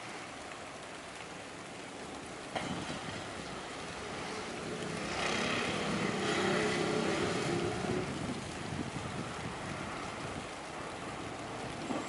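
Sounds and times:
vehicle engine passing by: 2.9s - 8.6s.

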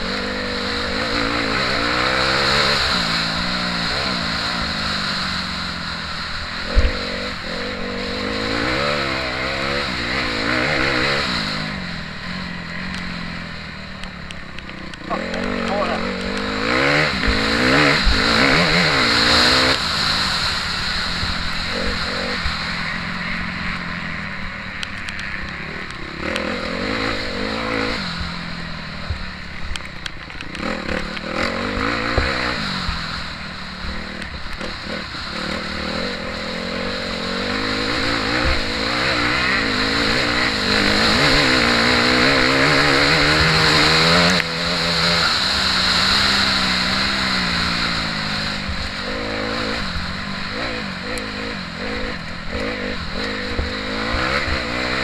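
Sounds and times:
motocross bike engine revving: 0.0s - 55.0s.

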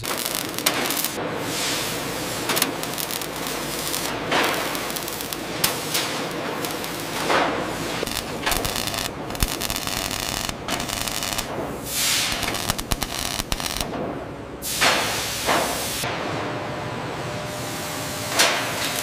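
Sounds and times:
hissing bursts: 0.0s - 13.9s
welding arc crackling: 0.0s - 16.1s, 18.3s - 19.0s.

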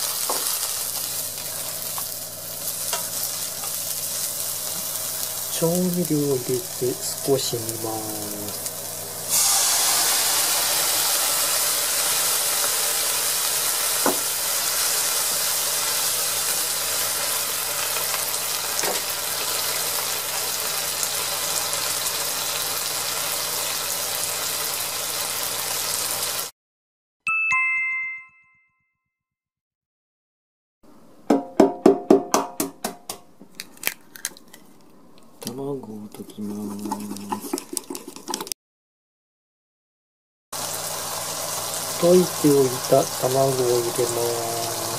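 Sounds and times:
liquid sizzling in a frying pan: 0.0s - 26.5s, 40.6s - 44.9s
two-note chime: 27.3s - 29.1s.

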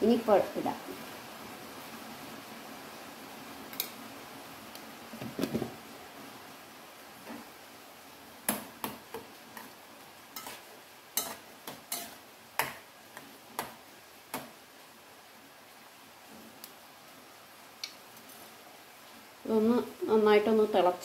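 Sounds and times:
spoon clinking in saucepan: 11.2s - 12.2s.

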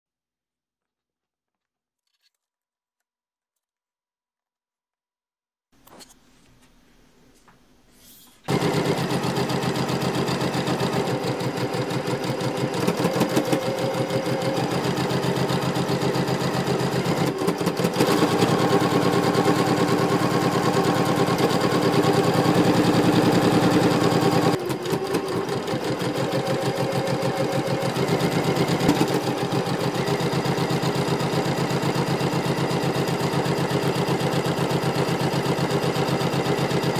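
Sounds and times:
sewing machine stitching: 8.5s - 36.9s.

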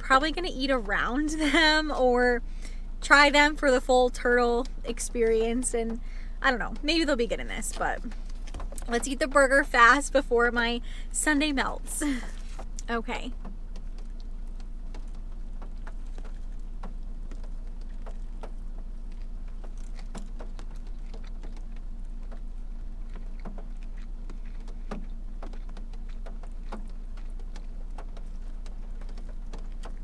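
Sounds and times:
steady low hum: 0.0s - 30.0s
person chewing food: 8.0s - 8.9s, 12.2s - 30.0s.

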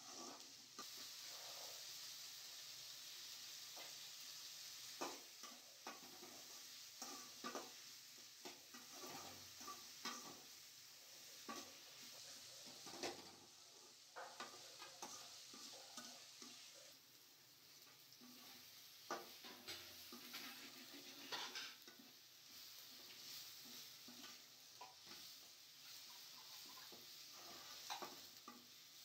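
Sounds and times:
metal utensil scraping a pan: 0.0s - 2.0s, 5.0s - 7.8s, 8.4s - 10.5s, 11.2s - 16.9s, 17.9s - 29.0s
food sizzling in hot oil: 0.0s - 29.0s.

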